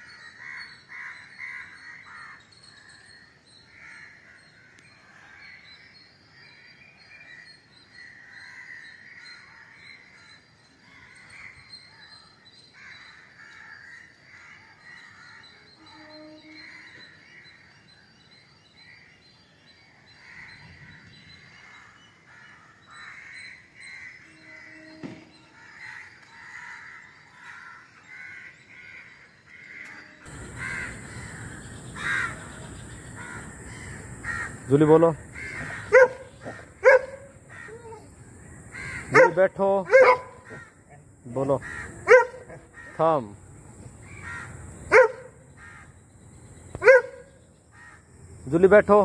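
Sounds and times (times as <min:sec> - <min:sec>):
crows cawing: 0:00.3 - 0:02.4, 0:08.0 - 0:10.0, 0:21.6 - 0:43.4, 0:44.0 - 0:46.0, 0:47.7 - 0:48.1
hissy background noise: 0:29.2 - 0:39.9.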